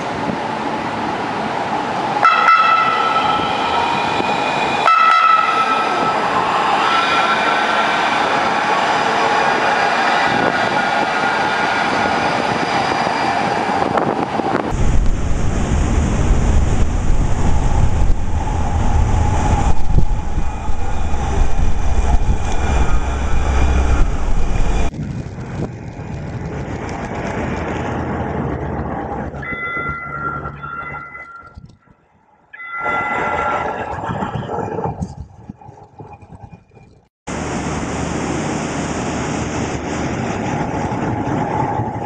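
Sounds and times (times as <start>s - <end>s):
tram drive whining: 0.0s - 42.0s
heavy low rumble: 14.6s - 30.1s.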